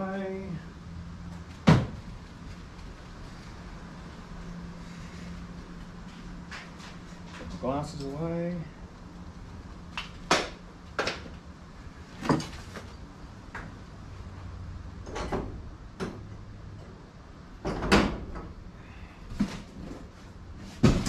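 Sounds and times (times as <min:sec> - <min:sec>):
objects knocking and clunking: 0:17.6 - 0:18.6, 0:20.6 - 0:21.0.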